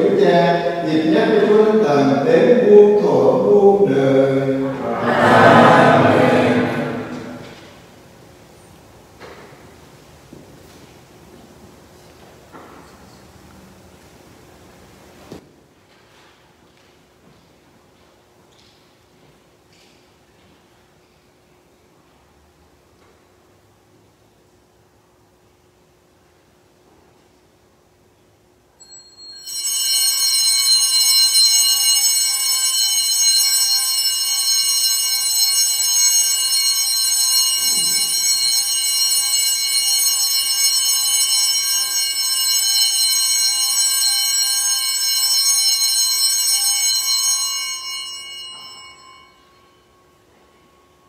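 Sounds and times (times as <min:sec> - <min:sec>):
altar bells ringing: 0:00.0 - 0:07.6, 0:28.8 - 0:51.0.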